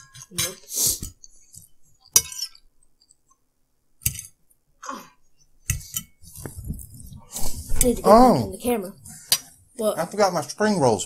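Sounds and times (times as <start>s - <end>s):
fork scraping a plate: 0.0s - 2.6s.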